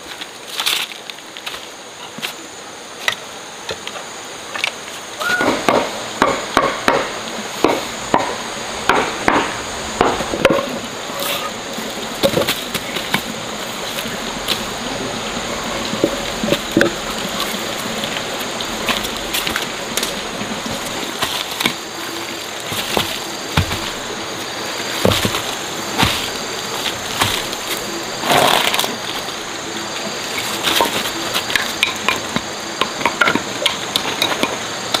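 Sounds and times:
steady hiss: 0.0 - 35.0
sharp knocks: 5.4 - 10.7.

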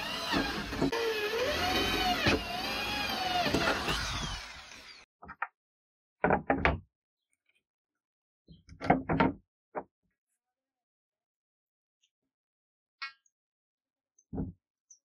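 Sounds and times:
electric drill boring steel: 0.0 - 5.1.

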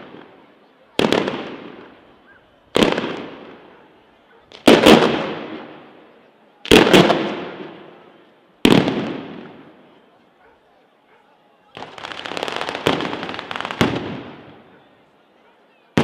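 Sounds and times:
firework bangs with echo: 1.0 - 2.0, 2.7 - 3.7, 4.5 - 5.9, 6.7 - 8.0, 8.6 - 9.8, 11.8 - 14.7.

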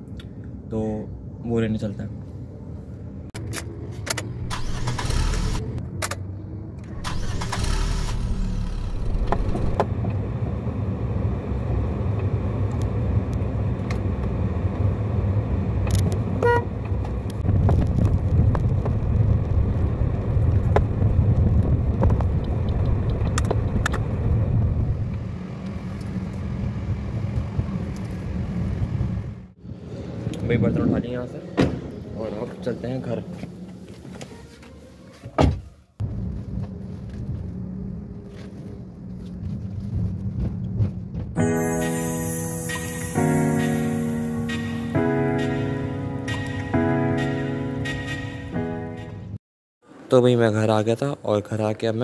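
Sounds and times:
car engine starting: 3.4 - 6.2, 6.8 - 11.5
car engine rumble inside cabin: 8.1 - 29.4.

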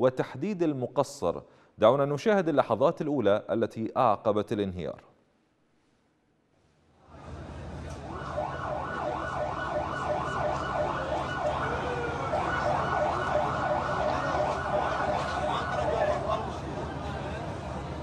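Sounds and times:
emergency siren yelping: 8.0 - 16.5.

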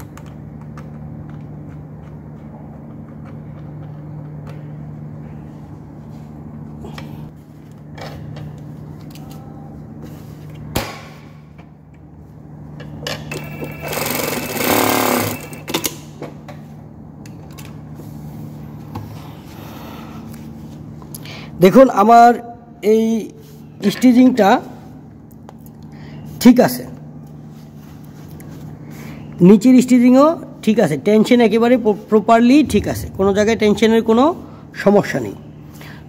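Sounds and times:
sewing machine humming: 13.3 - 15.8
sewing machine stitching fast: 13.4 - 15.7.

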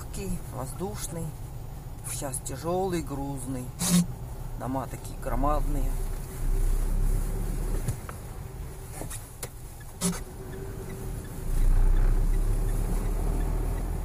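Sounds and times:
car engine and tyre rumble: 0.0 - 14.0.

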